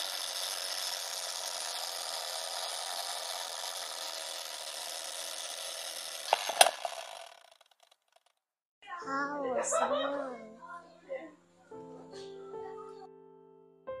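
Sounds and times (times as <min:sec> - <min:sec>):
film projector whirring and rattling: 0:00.0 - 0:08.4
sharp clicks: 0:06.2 - 0:08.3.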